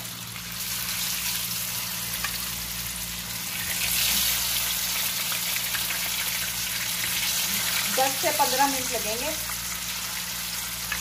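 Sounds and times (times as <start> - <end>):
fish sizzling in oil: 0.0 - 11.0.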